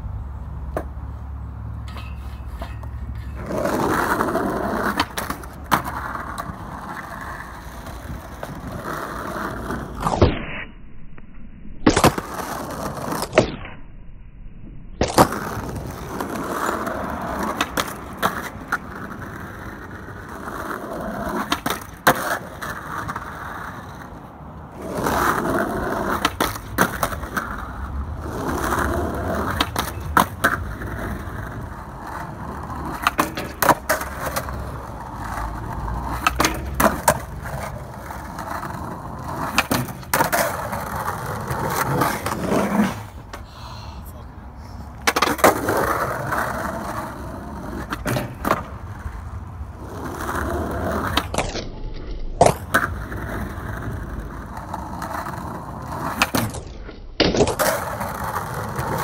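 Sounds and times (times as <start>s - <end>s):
skateboard wheels rolling on asphalt: 0.0s - 59.0s
skateboard popping and landing: 0.6s - 10.8s, 11.8s - 13.8s, 15.0s - 43.5s, 45.0s - 59.0s
skateboard grinding on metal: 1.8s - 10.2s, 24.8s - 43.4s.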